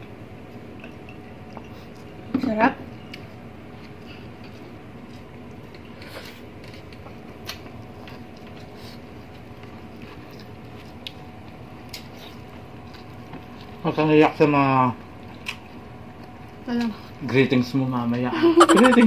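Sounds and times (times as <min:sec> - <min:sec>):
chewing and mouth smacks: 0:03.1 - 0:13.8, 0:15.2 - 0:16.4.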